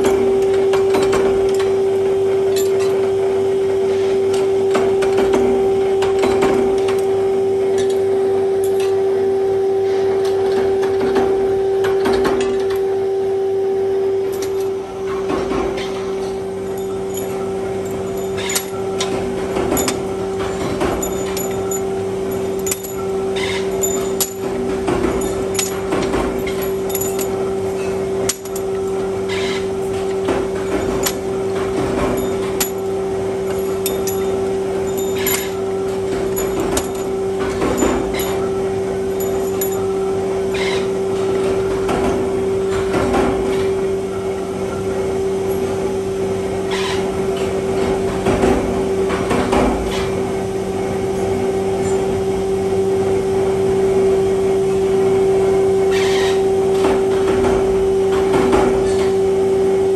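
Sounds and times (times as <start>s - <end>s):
electric machine hum: 0.0s - 59.9s
metallic clinks and knocks: 16.7s - 28.9s, 30.6s - 31.3s, 31.9s - 32.9s, 33.5s - 38.5s, 39.1s - 39.9s.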